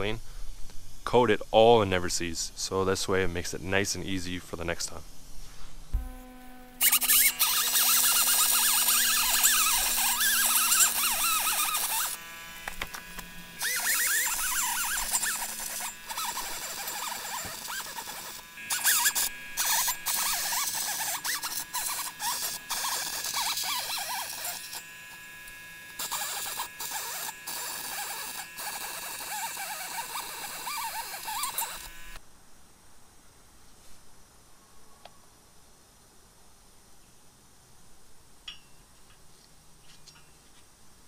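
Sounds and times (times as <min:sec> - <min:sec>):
rotary tool grinding metal: 0:05.9 - 0:32.2.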